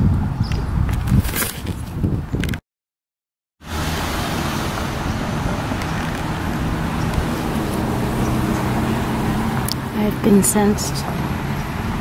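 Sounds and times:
road traffic noise: 3.6 - 12.0
vehicle engine hum: 3.6 - 12.0.

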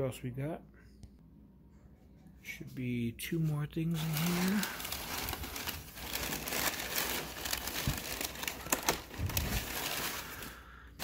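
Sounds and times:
packing paper crumpling: 3.9 - 11.0.

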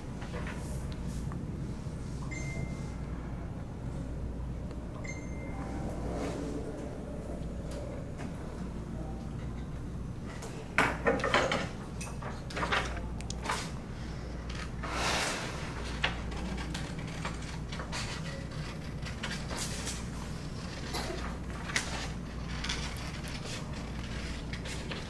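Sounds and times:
low hum: 0.0 - 10.4.

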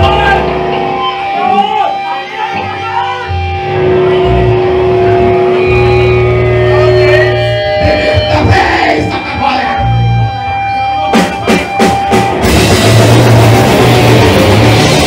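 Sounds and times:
metal band playing live: 0.0 - 15.0
drum hits: 11.2 - 15.0.

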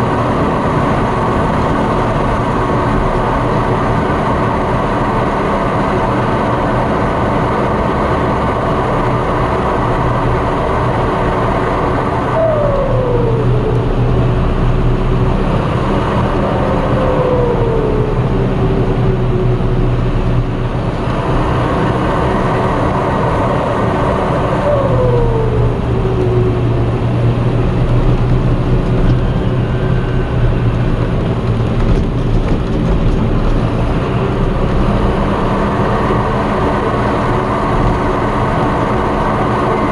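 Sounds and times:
tractor diesel engine running: 0.0 - 39.9
falling tone: 12.2 - 15.3, 16.0 - 20.6, 24.1 - 27.5.

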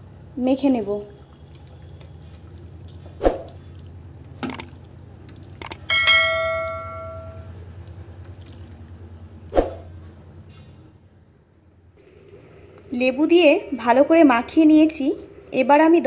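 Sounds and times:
steady low hum: 0.0 - 16.0
clicks: 5.6 - 5.8
bright bell ding: 5.9 - 7.5.

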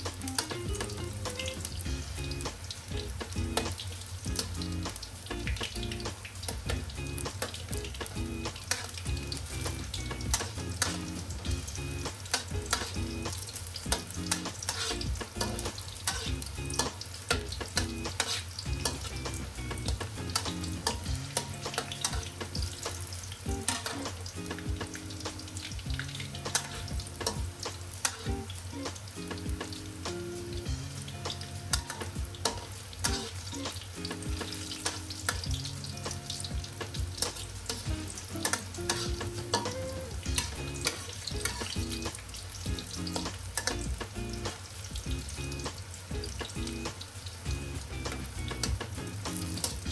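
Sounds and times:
eggplant sizzling in hot oil: 0.0 - 49.9
metal spatula scraping pan: 8.6 - 11.4, 12.3 - 24.7, 26.1 - 28.3, 31.3 - 33.8, 34.4 - 35.5, 36.1 - 42.1.

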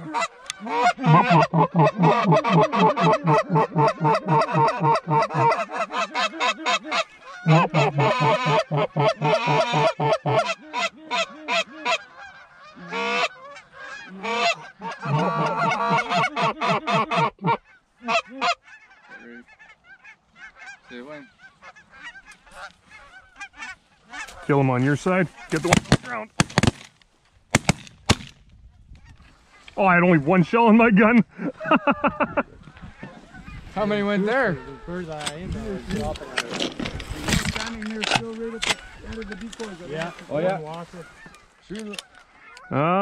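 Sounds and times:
goose calls honking and clucking: 0.0 - 26.2, 37.2 - 43.0.

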